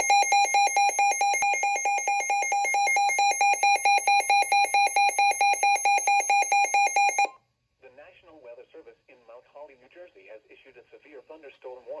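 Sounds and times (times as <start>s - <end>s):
rapid electronic alarm beeping: 0.0s - 7.3s.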